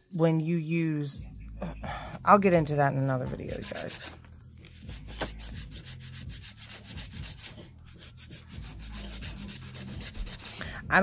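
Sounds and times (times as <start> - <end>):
nail file rubbing: 3.3 - 10.6.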